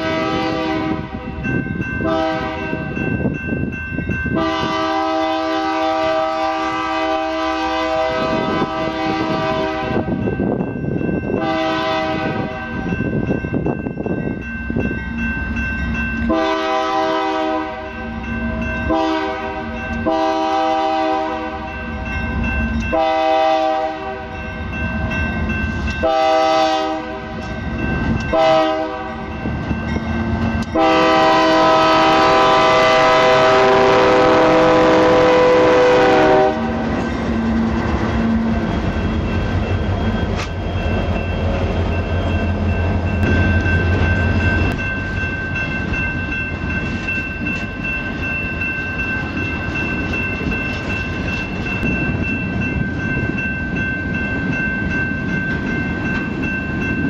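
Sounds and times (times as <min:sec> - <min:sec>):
locomotive air horn blasts: 0:00.0 - 0:01.3, 0:02.0 - 0:02.9, 0:04.4 - 0:10.2, 0:11.4 - 0:12.6, 0:16.3 - 0:17.9, 0:18.9 - 0:21.7, 0:22.9 - 0:24.3, 0:26.0 - 0:27.3, 0:28.3 - 0:29.2, 0:30.7 - 0:36.9
freight cars rumbling over rails: 0:27.0 - 0:57.0.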